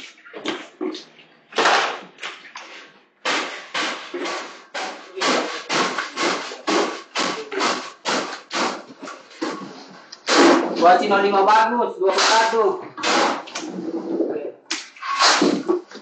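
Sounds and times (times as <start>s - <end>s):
rapid regular knocks: 3.2s - 9.7s.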